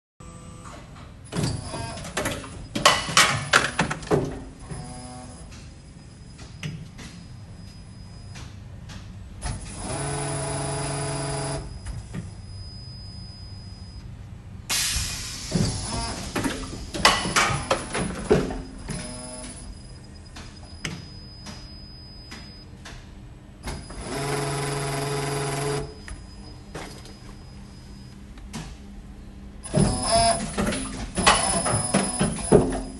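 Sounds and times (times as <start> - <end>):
machine humming: 23.6 - 32.9.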